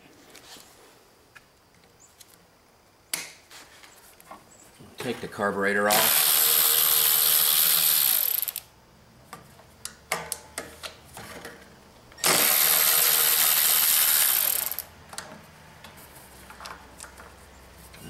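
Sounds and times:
power tool running: 0:05.9 - 0:08.7, 0:12.2 - 0:14.9.

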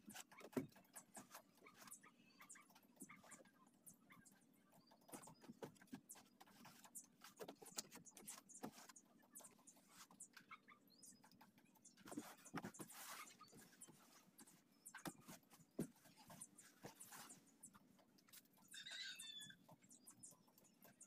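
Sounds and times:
scraping and rubbing on fiberglass: 0:11.9 - 0:19.4.

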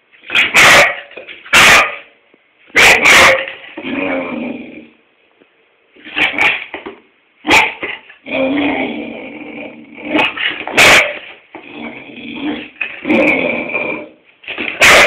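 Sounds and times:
dog barking: 0:00.3 - 0:03.6, 0:06.1 - 0:06.7, 0:07.4 - 0:08.0, 0:10.2 - 0:11.3, 0:14.7 - 0:15.0.

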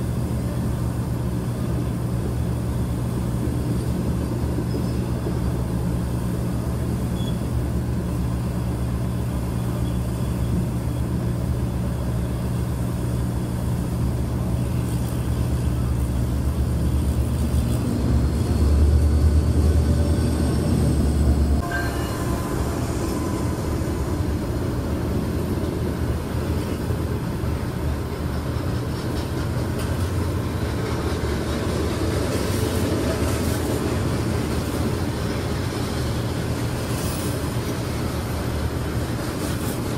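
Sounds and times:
diesel locomotive engine rumble: 0:00.0 - 0:39.9
freight train rumbling past: 0:00.0 - 0:39.9.

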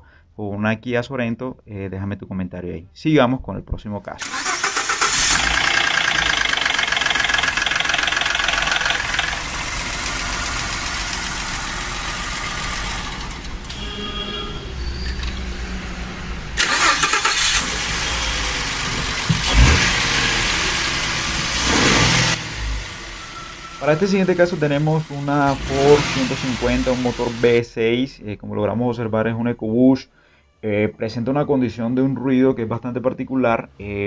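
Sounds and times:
engine running with chain rattle: 0:04.7 - 0:09.6.

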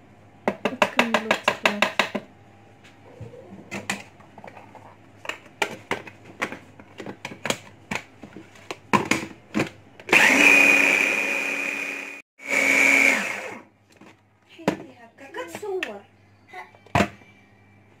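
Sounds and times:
food chopper motor whine: 0:10.1 - 0:13.7.

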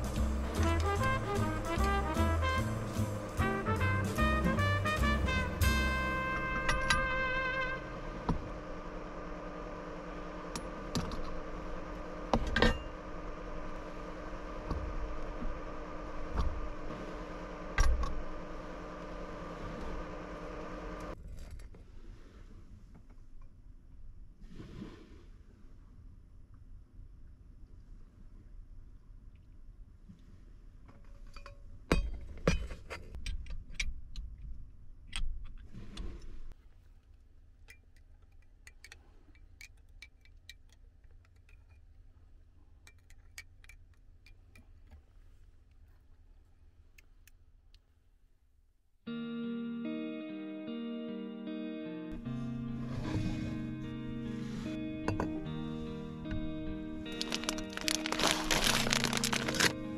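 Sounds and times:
machine hum: 0:00.0 - 0:21.2, 0:52.1 - 0:59.9
light clinks and ticks: 0:37.6 - 0:42.2, 0:42.8 - 0:45.0
short rustle: 0:57.1 - 0:59.9.

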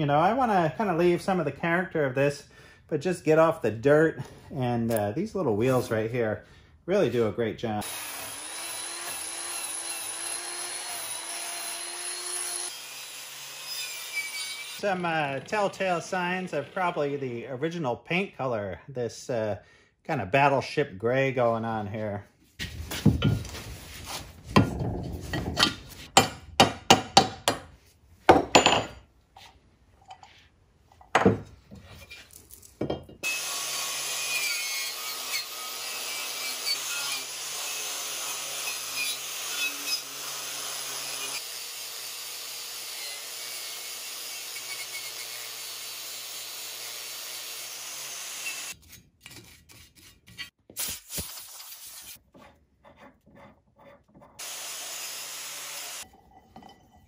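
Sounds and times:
angle grinder scrubbing metal: 0:07.8 - 0:17.2, 0:33.2 - 0:48.8, 0:54.4 - 0:56.1.

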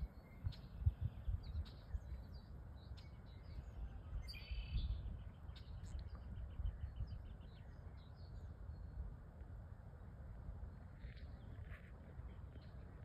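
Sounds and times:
birds chirping: 0:00.0 - 0:09.0
wind rumble on microphone: 0:00.0 - 0:13.0.

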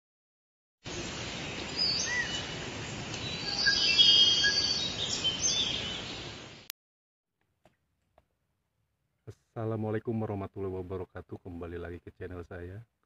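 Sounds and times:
birds chirping: 0:00.9 - 0:06.7
steady hiss: 0:00.9 - 0:06.7.

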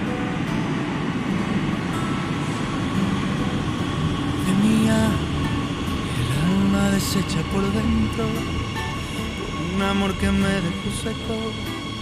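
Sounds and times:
train wheels rumbling: 0:00.0 - 0:12.0.

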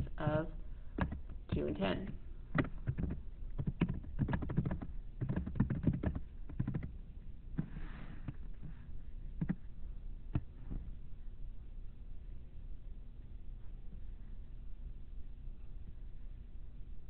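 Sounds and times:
computer keyboard typing: 0:01.0 - 0:07.0, 0:09.4 - 0:09.6.

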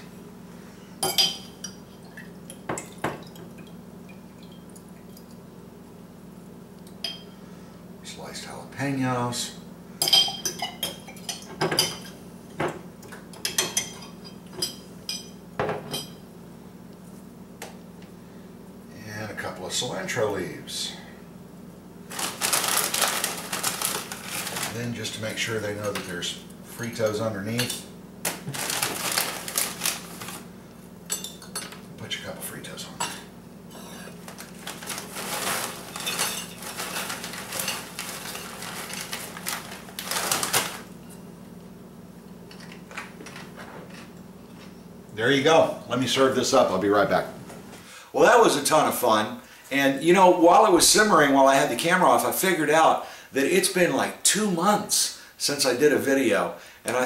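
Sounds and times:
low steady hum: 0:00.0 - 0:57.0
utensil clinking on dishware: 0:10.0 - 0:12.2
chip bag crinkling: 0:22.1 - 0:25.2, 0:28.3 - 0:30.5, 0:34.2 - 0:41.0.

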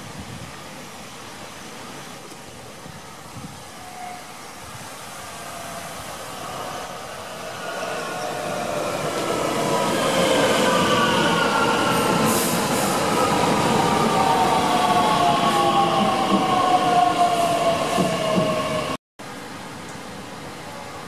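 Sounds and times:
train wheels on rails: 0:04.8 - 0:19.0.

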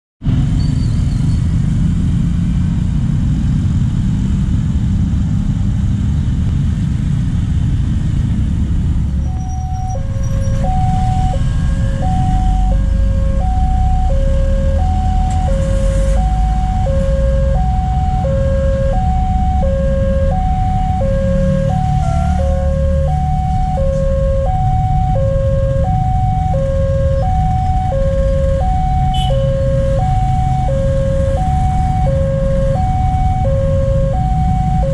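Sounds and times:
motorcycle traffic rumble: 0:00.2 - 0:34.9
level crossing two-tone alarm: 0:09.3 - 0:34.9.

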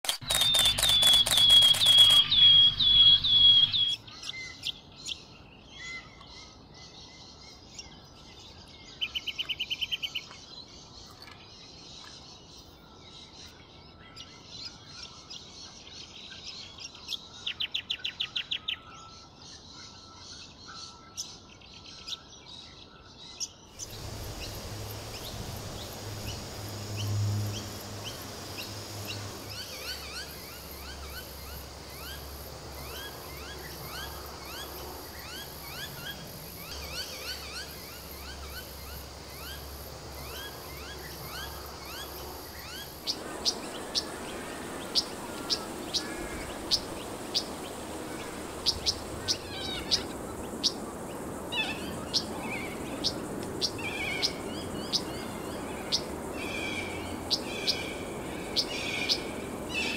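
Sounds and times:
insects chorus: 0:00.0 - 0:04.5, 0:23.7 - 0:59.9
bird chirps and trills: 0:00.0 - 0:07.9, 0:23.4 - 0:59.9.

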